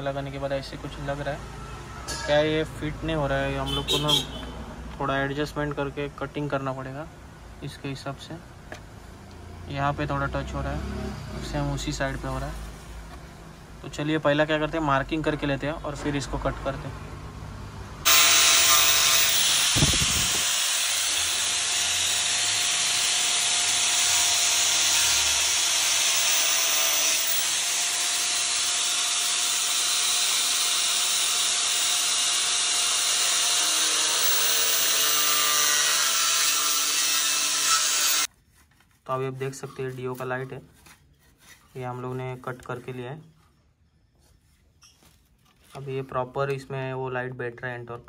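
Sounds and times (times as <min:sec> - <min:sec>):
power tool grinding plastic: 0:18.1 - 0:38.3.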